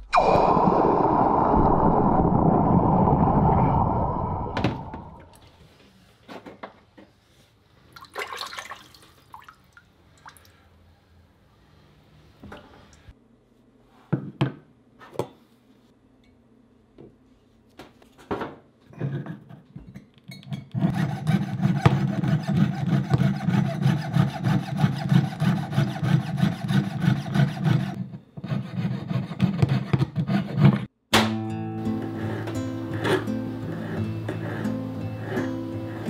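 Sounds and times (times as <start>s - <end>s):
hand tool filing metal: 20.8s - 30.8s.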